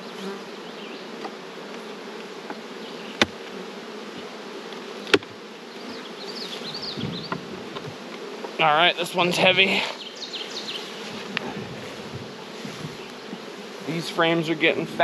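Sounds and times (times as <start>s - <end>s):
honeybees buzzing: 0.0s - 15.0s
knocks of wooden hive boxes: 1.2s - 9.4s, 11.0s - 13.8s.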